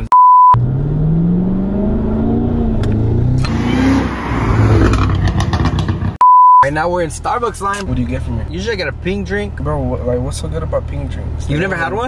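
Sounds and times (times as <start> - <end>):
car engine accelerating hard: 0.6 - 6.2
high test-tone beep: 6.2 - 6.7.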